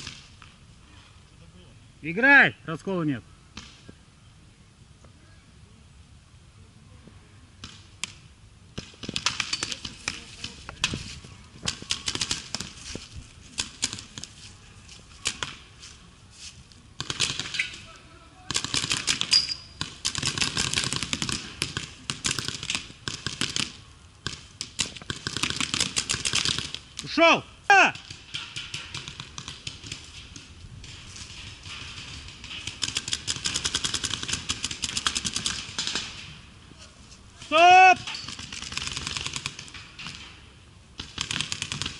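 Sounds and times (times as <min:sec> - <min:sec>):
paintball markers firing: 0:17.0 - 0:17.8, 0:31.7 - 0:36.2, 0:41.0 - 0:41.9.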